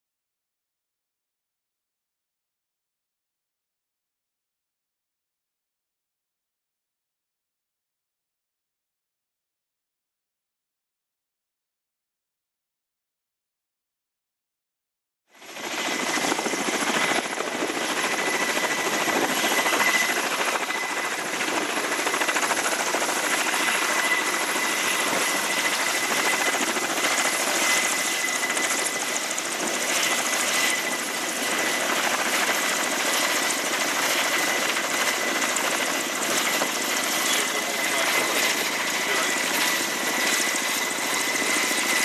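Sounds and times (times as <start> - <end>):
helicopter hovering: 15.3 - 42.0
high turbine whine: 15.4 - 42.0.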